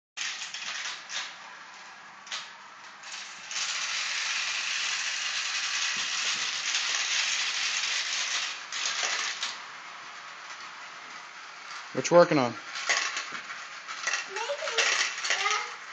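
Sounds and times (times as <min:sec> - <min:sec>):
marbles clattering down plastic track: 0:00.2 - 0:01.4, 0:03.0 - 0:09.6, 0:12.7 - 0:15.9.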